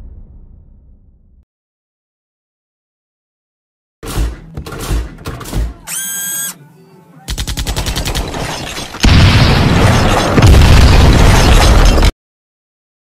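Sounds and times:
machine-gun fire: 0:07.3 - 0:12.1
loud explosion: 0:09.0 - 0:12.1.

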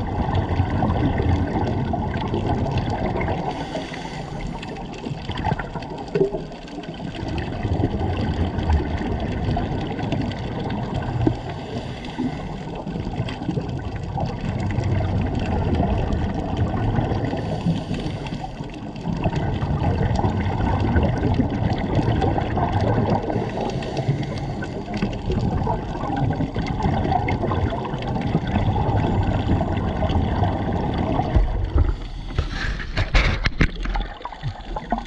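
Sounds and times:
divers' exhaled air bubbling: 0:00.0 - 0:35.0
underwater rumbling wash: 0:00.0 - 0:35.0.

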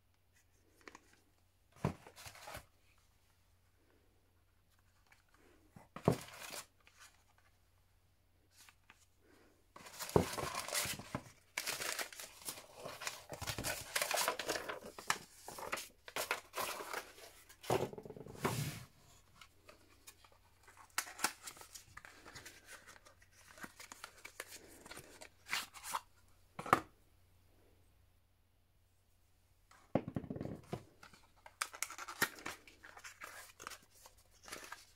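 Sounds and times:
paper crinkling and rustling: 0:09.8 - 0:17.7, 0:31.0 - 0:34.9.

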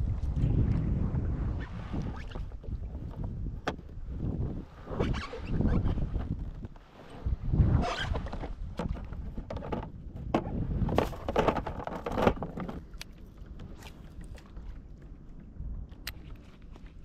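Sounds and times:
low wind rumble: 0:00.0 - 0:17.0
fishing gear clicks and knocks: 0:08.2 - 0:17.0.

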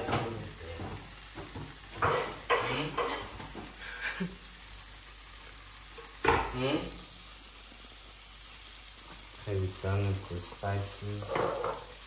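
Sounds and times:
food sizzling in a frying pan: 0:00.0 - 0:12.0
spoon scraping a pan: 0:00.8 - 0:03.6, 0:11.2 - 0:12.0.

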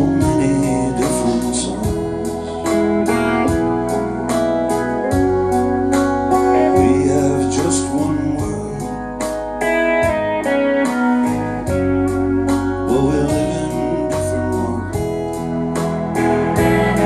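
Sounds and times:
soft drum beat: 0:00.0 - 0:08.8
lead electric guitar: 0:00.0 - 0:17.0
rock music over loudspeakers: 0:00.0 - 0:17.0.

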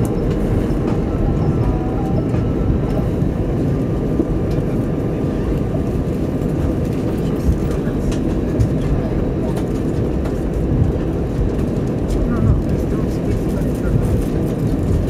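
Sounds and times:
aircraft engines at taxi power: 0:00.0 - 0:15.0.

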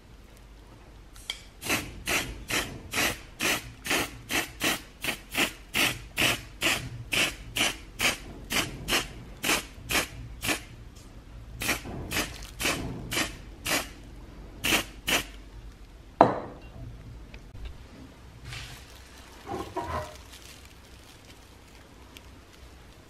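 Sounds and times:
spray-paint can hissing: 0:01.6 - 0:10.7, 0:11.6 - 0:14.0, 0:14.6 - 0:15.4.

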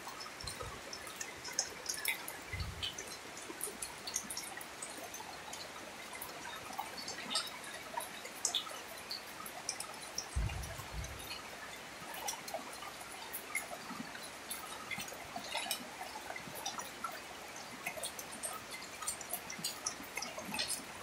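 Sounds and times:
close drips splashing: 0:00.0 - 0:21.0
rain falling steadily: 0:00.0 - 0:21.0.

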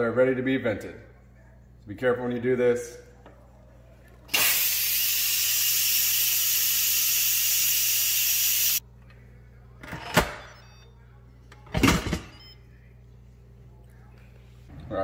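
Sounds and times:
pressure cooker steam hiss: 0:04.4 - 0:08.8.

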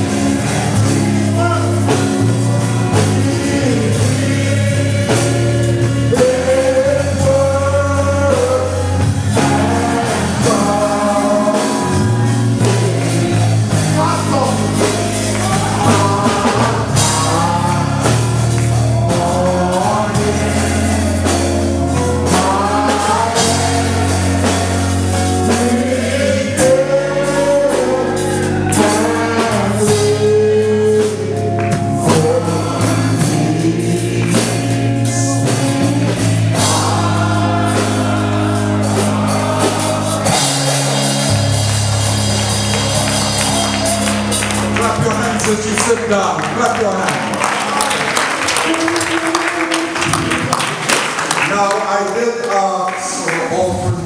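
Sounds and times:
voices singing together: 0:00.0 - 0:46.0
steady drum beat: 0:00.0 - 0:51.6
bass line: 0:00.0 - 0:51.7.

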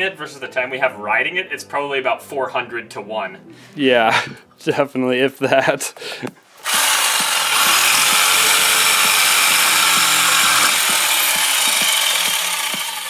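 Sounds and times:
jigsaw cutting metal: 0:06.6 - 0:13.0.

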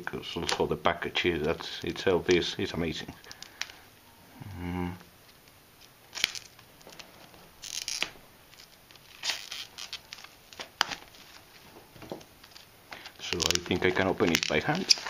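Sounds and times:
plastic crinkling: 0:01.3 - 0:03.8, 0:05.3 - 0:15.0
scissors cutting plastic: 0:07.6 - 0:11.0.

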